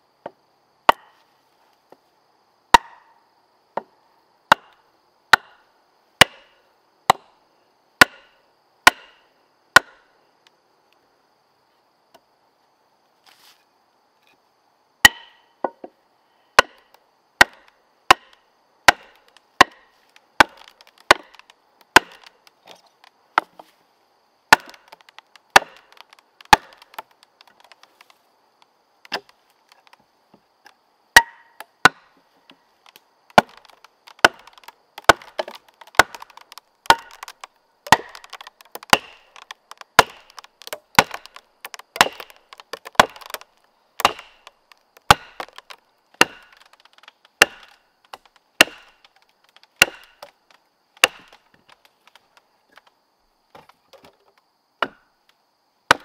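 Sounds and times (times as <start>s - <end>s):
wood being chopped by hand: 0.9s - 1.2s, 2.7s - 3.1s, 4.5s - 5.6s, 6.2s - 6.5s, 7.1s - 7.3s, 8.0s - 9.2s, 9.8s - 10.0s, 15.0s - 15.9s, 16.6s - 22.4s, 24.5s - 28.2s, 29.1s - 30.0s, 31.2s - 32.1s, 33.3s - 50.4s, 51.0s - 52.9s, 54.8s - 55.0s.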